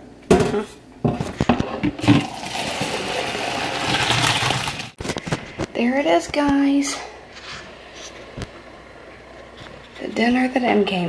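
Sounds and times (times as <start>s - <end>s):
water pouring into sink: 2.0s - 5.0s.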